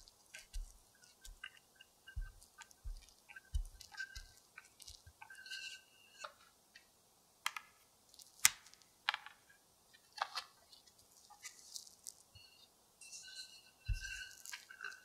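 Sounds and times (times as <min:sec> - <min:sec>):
cling wrap crinkling and squeaking: 0:00.0 - 0:05.1, 0:10.9 - 0:12.4, 0:14.0 - 0:15.0.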